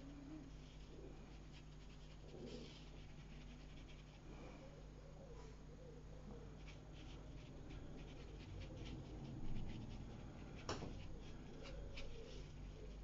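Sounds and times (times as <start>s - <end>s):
paintbrush scratching on paper: 0.6s - 4.2s, 6.5s - 13.0s.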